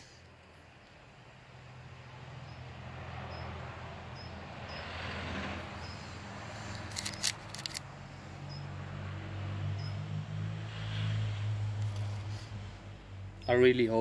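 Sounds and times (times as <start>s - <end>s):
crisp clicks: 6.7s - 7.8s.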